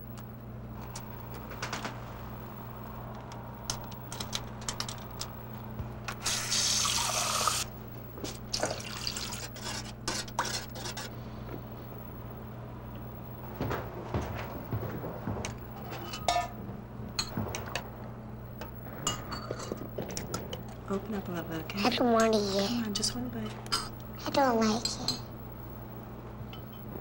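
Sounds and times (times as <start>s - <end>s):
steady low hum: 0.0s - 27.0s
pots and dishes clattering: 15.4s - 16.6s, 18.6s - 20.8s.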